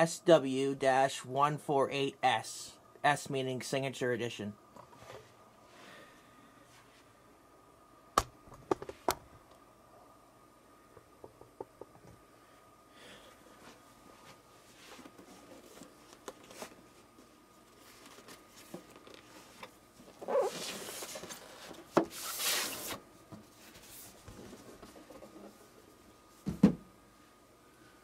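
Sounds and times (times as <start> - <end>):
cardboard scraping and rustling: 20.1 - 23.0.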